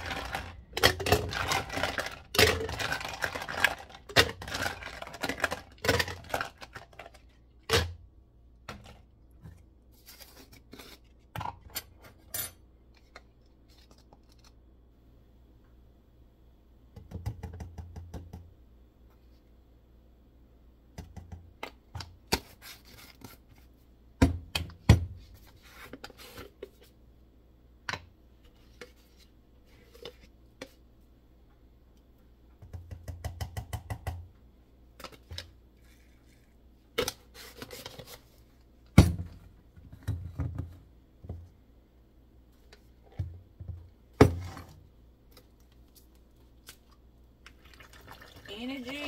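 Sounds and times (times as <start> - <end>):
plastic tubs clicking and knocking: 32.6 - 34.3.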